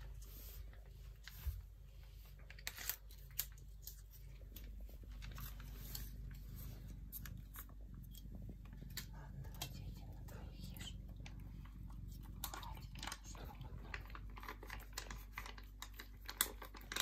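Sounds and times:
crinkly snaps of pouch: 0:02.5 - 0:06.0, 0:13.9 - 0:17.0.

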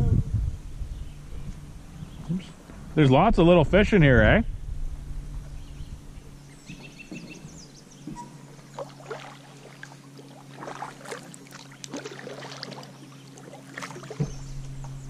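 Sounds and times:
faint low hum: 0:00.0 - 0:15.0
kayak paddle splashing water: 0:08.1 - 0:15.0.

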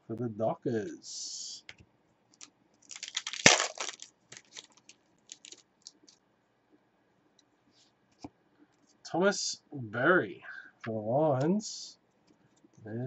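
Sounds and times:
trading cards rustling and flicking: 0:02.4 - 0:06.2.

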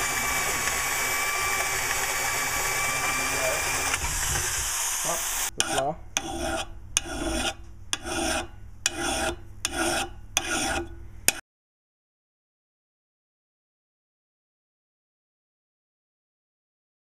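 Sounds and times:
power drill boring through wood: 0:00.0 - 0:05.5
file rasping on metal: 0:03.0 - 0:11.4.

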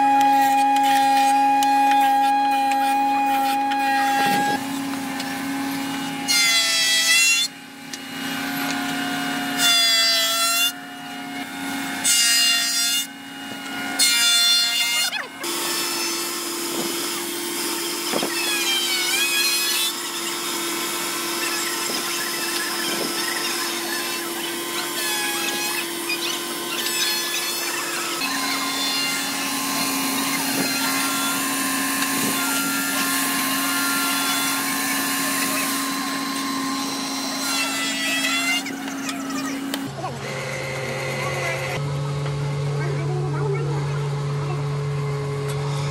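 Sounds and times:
electric wood planer: 0:00.0 - 0:45.9
wood lathe motor running: 0:00.0 - 0:45.9.

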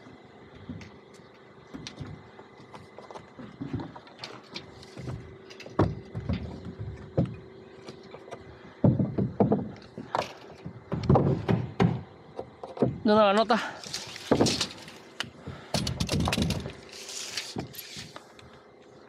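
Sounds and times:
faint steady hum: 0:00.0 - 0:19.0
knocks and clicks of framing work: 0:00.5 - 0:18.2
heavy thumps on wood deck: 0:05.8 - 0:07.4, 0:08.8 - 0:12.1.

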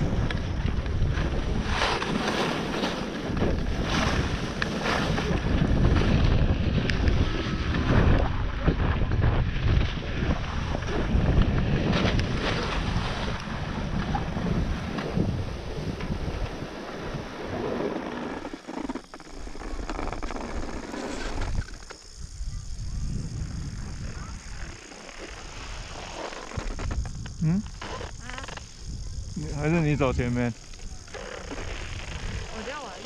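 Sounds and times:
skis scraping on snow: 0:00.0 - 0:08.1, 0:09.9 - 0:22.1, 0:24.1 - 0:28.7, 0:29.5 - 0:33.0
wind buffeting microphone: 0:00.0 - 0:18.6, 0:19.4 - 0:33.0.

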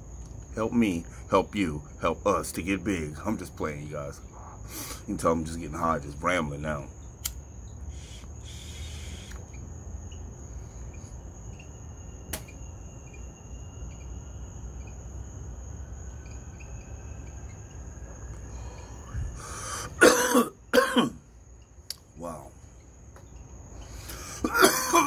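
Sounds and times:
crickets trilling: 0:00.0 - 0:25.0
click: 0:07.2 - 0:07.4, 0:12.3 - 0:12.6
person coughing: 0:20.0 - 0:21.2, 0:24.4 - 0:25.0.

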